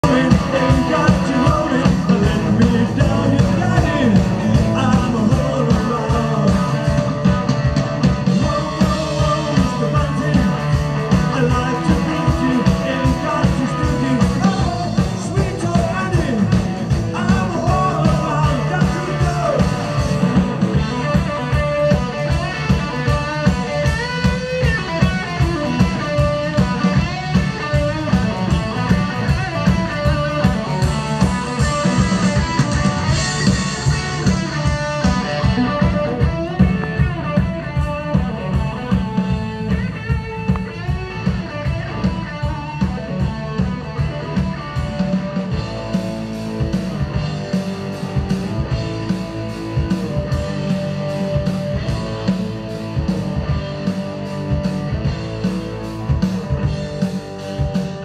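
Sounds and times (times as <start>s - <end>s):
person singing: 0.0s - 7.2s, 8.3s - 20.4s
bass guitar: 0.0s - 58.0s
drum kit steady beat: 0.0s - 58.0s
electric guitar: 0.0s - 58.0s.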